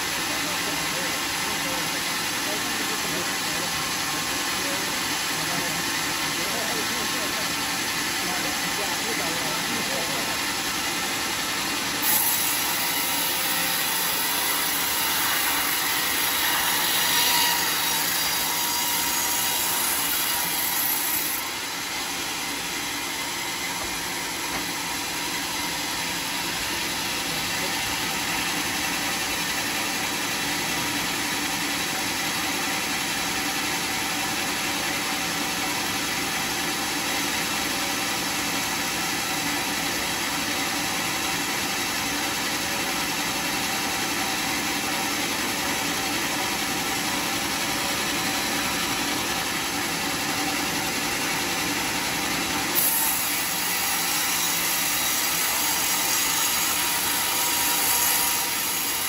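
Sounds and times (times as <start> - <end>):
sawmill machinery humming: 0.0 - 59.0.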